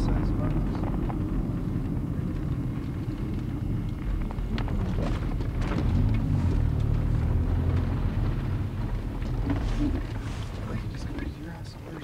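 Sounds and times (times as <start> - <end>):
car engine and road rumble: 0.0 - 12.0.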